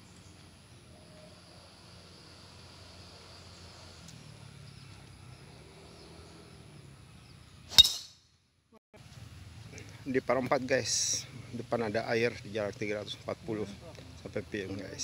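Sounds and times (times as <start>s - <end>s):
faint outdoor background: 0.0s - 15.0s
golf club striking ball: 7.7s - 8.2s.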